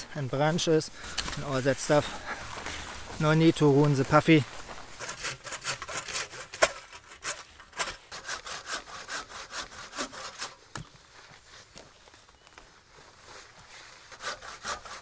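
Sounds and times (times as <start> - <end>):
hand saw cutting wood: 5.0 - 10.8, 14.0 - 15.0.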